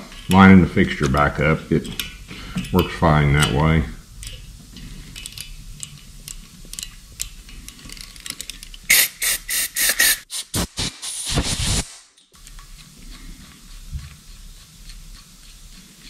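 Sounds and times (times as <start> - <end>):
aerosol spray hissing: 8.9 - 11.9.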